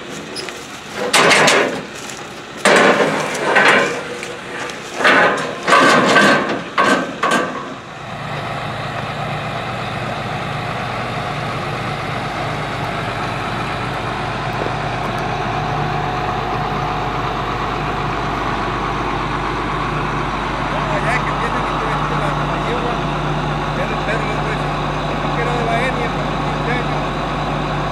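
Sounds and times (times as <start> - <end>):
metal ladder clanking and rattling: 0.0 - 7.8
diesel engine idling: 0.0 - 27.9.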